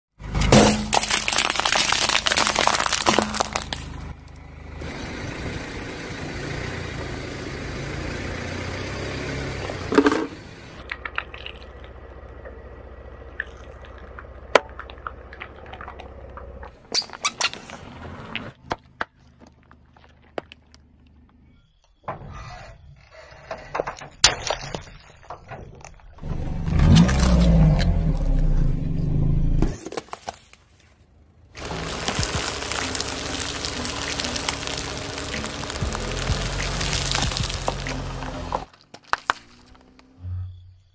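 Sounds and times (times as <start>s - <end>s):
objects crunching under tyres: 0.2s - 5.0s, 7.8s - 22.0s, 22.9s - 40.6s
glass tube shattering: 0.4s - 4.0s, 31.6s - 38.2s.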